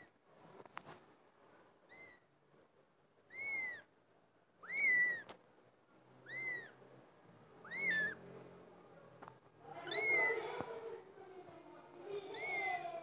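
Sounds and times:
kitten mewing: 3.3s - 3.9s, 4.6s - 5.4s, 6.2s - 6.8s, 7.6s - 8.2s, 9.8s - 10.8s, 12.2s - 12.9s.

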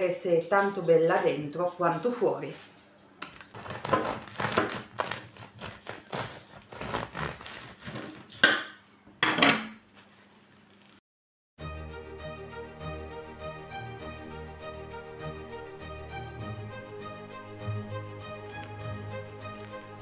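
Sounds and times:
knife sawing through bread crust: 3.5s - 8.2s
music: 11.6s - 20.0s.

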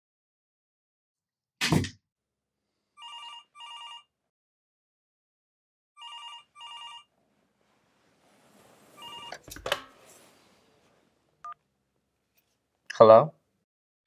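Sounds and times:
cordless phone ringing: 3.0s - 4.1s, 6.0s - 7.1s, 9.0s - 9.5s.

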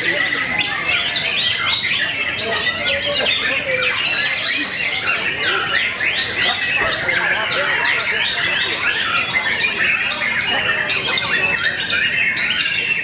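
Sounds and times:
birds singing in chorus: 0.0s - 13.0s.

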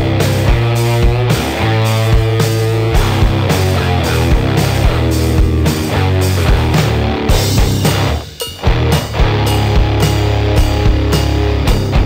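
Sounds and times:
rock music: 0.0s - 12.0s.

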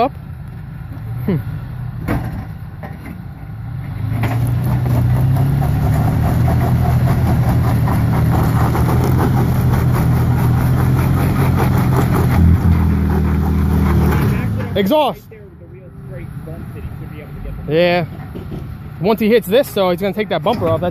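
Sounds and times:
truck engine working under load: 0.0s - 15.3s.

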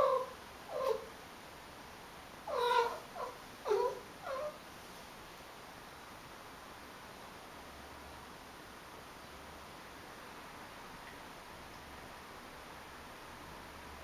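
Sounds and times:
cat meowing: 2.5s - 4.6s.

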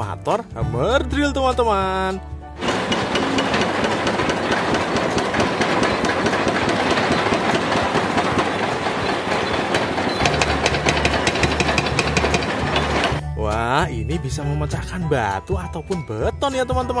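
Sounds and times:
excavator engines running: 2.6s - 13.2s
hydraulic breakers hammering concrete: 2.6s - 13.2s.

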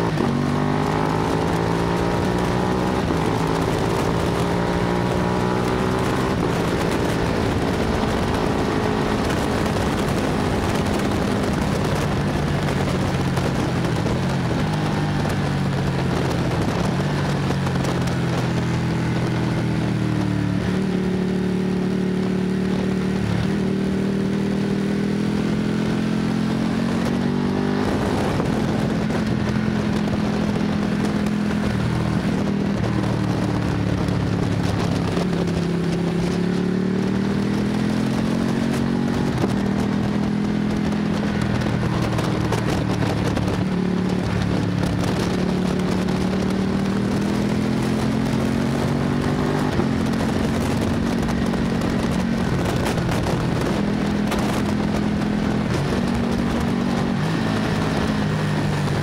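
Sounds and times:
motorcycle engine revving: 0.0s - 59.0s
wind rushing over microphone: 0.0s - 59.0s.

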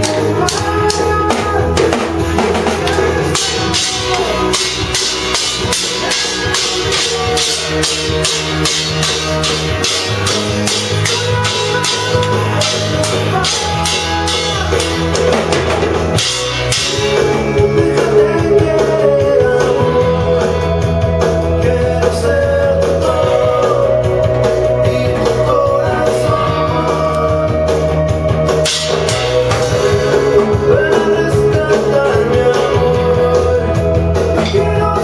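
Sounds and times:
toy drum kit hits: 0.0s - 17.3s, 28.6s - 30.8s
rock song with guitar and singing: 0.0s - 35.0s.

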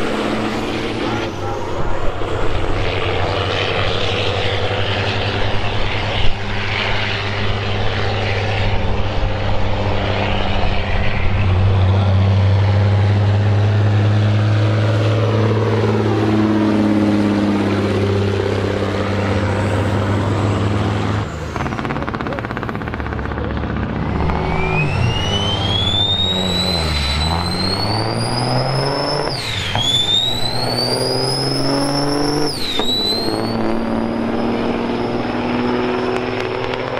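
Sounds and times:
truck diesel engine drone: 0.0s - 36.9s
sharp crack: 21.0s - 33.9s.

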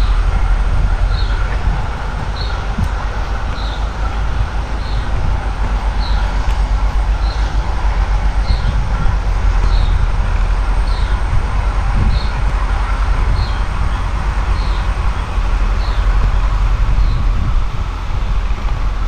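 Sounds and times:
wind rumbling on microphone: 0.0s - 19.0s.

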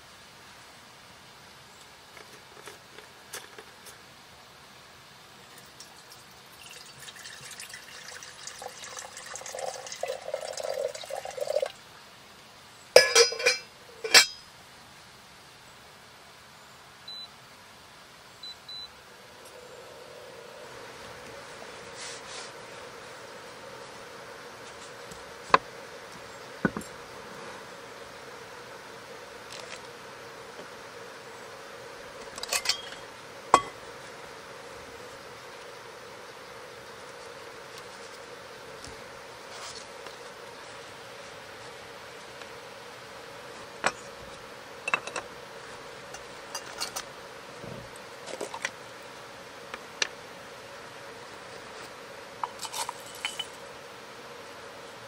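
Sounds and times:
water pouring into a kettle: 5.6s - 11.8s
kettle lid clinking: 13.0s - 14.4s, 32.4s - 33.0s, 33.6s - 33.8s
metal pieces clinking: 52.6s - 53.6s.

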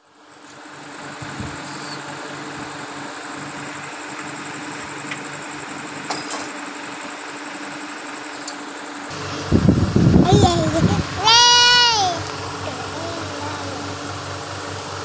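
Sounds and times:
motor humming: 8.8s - 15.0s.

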